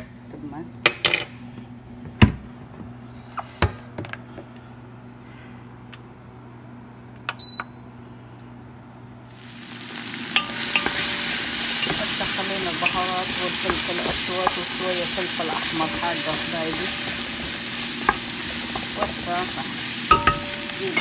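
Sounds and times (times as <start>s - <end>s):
vegetables sizzling in pot: 9.3s - 21.0s.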